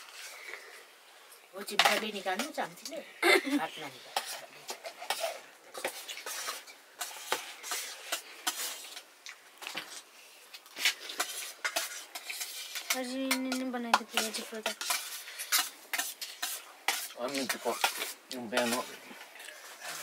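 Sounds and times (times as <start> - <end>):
metal spoon scraping steel plate: 3.7 - 9.0, 10.8 - 20.0.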